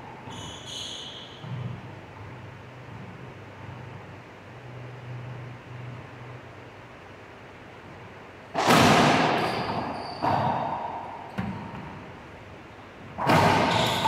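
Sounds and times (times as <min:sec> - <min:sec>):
racquetball cracking off walls: 0:08.5 - 0:11.9, 0:13.2 - 0:14.0.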